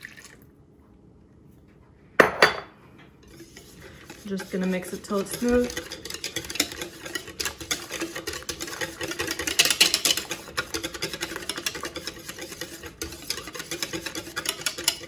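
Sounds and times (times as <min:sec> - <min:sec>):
whisk clicking against bowl: 0:03.2 - 0:15.0.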